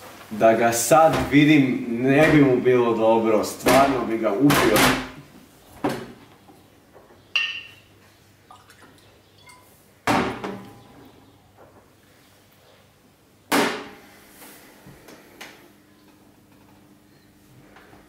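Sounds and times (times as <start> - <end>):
glass clinking with ringing note: 7.4 - 7.8, 9.4 - 9.7.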